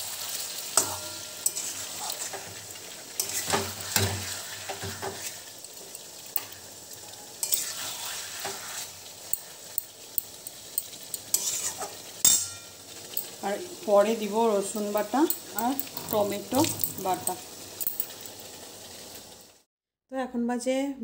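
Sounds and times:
chicken and onions sizzling: 0.0 - 19.7
metal spatula scraping pan: 0.7 - 5.5, 6.4 - 13.3.

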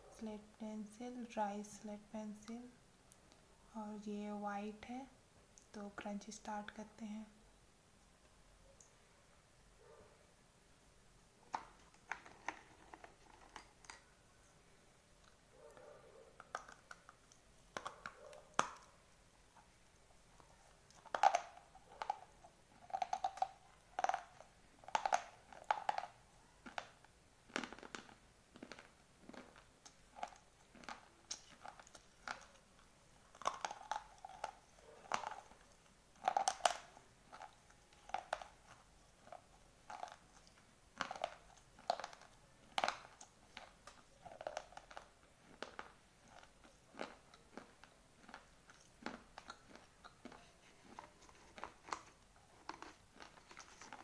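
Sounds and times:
pencil being chewed crunching: 11.5 - 14.1, 16.4 - 54.0.

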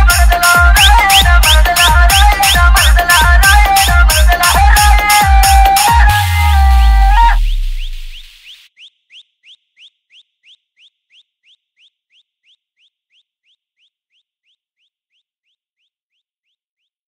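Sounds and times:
rising electronic chirp: 5.7 - 13.9.

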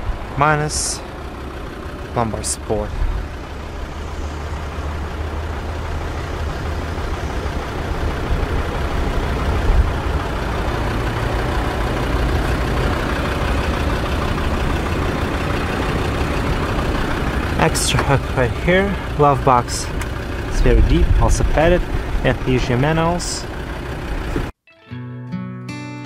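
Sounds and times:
car engine idling: 0.0 - 24.5.

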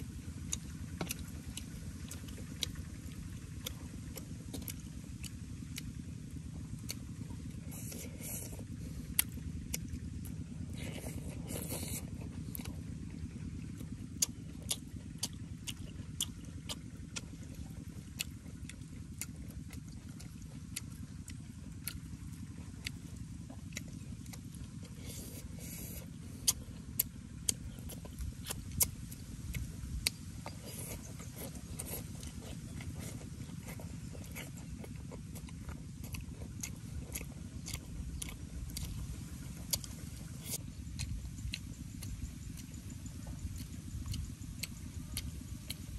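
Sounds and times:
chewing and lip smacks: 0.0 - 45.9
steady low rumble: 0.0 - 45.9
slurping soup: 10.7 - 12.2.

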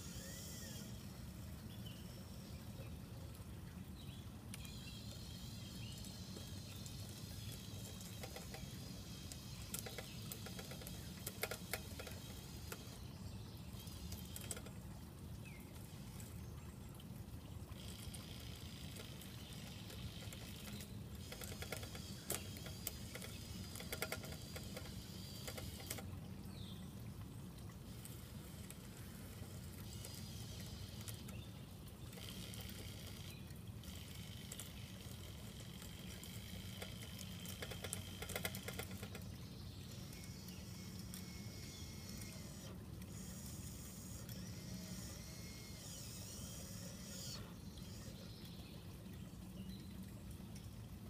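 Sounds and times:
small electric motors whirring: 0.0 - 1.1, 4.6 - 13.1, 17.8 - 26.2, 27.9 - 31.4, 32.0 - 39.2, 39.9 - 48.2.

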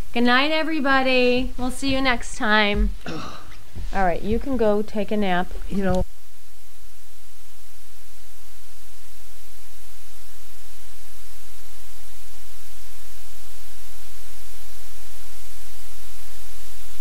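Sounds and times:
static hiss: 0.0 - 17.0.

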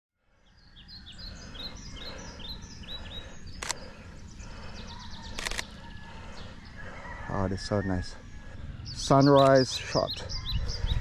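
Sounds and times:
birds chirping: 0.2 - 11.0
low background rumble: 0.3 - 11.0
sharp clicks: 3.5 - 4.0, 5.3 - 5.8.

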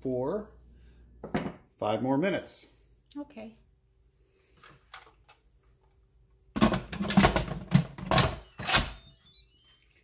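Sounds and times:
plastic lid clattering on metal: 6.6 - 8.3.

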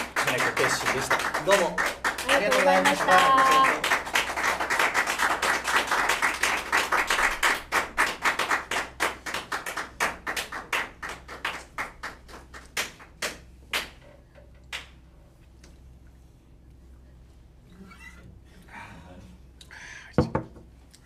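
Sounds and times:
applause: 0.0 - 14.0.

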